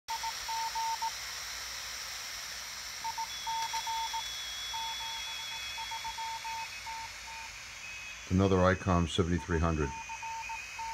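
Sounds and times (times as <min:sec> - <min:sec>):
receiver hiss: 0:00.1 - 0:10.9
faint high whistle: 0:03.0 - 0:08.4
morse code tone: 0:03.0 - 0:10.9.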